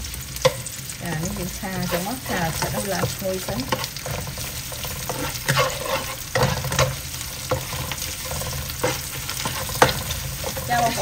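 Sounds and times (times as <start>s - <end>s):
food sizzling in hot oil: 0.0s - 11.0s
spatula scraping and knocking pan: 0.4s - 11.0s.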